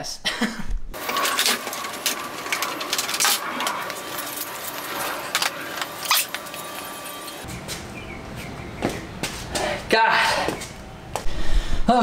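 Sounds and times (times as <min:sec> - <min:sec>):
metal tools clinking and rattling: 0:01.0 - 0:07.3.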